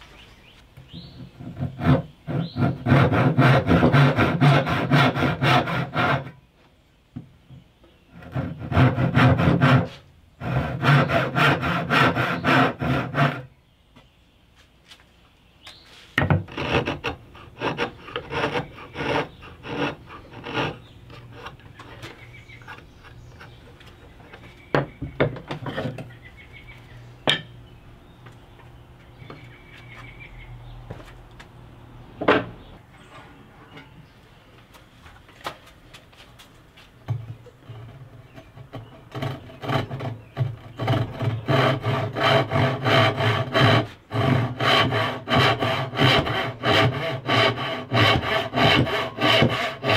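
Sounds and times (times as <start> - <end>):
hand saw cutting wood: 1.2 - 6.4, 8.2 - 13.5, 16.2 - 23.7, 37.7 - 49.9
tools clattering on wooden bench: 27.3 - 27.5.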